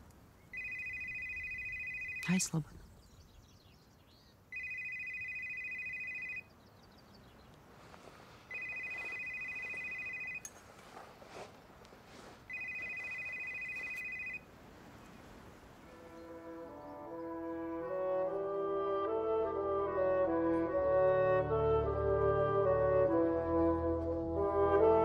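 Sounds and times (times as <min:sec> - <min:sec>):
phone ringing electronic trill: 0:00.6 - 0:02.3, 0:04.5 - 0:06.5, 0:08.5 - 0:10.4, 0:12.5 - 0:14.4.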